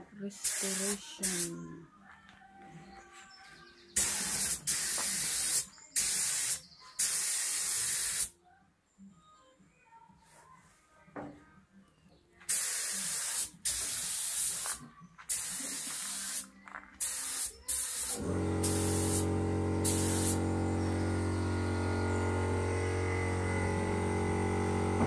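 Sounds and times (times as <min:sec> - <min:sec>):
paint spray gun hissing: 0:00.4 - 0:01.5, 0:04.0 - 0:08.3, 0:12.5 - 0:22.9.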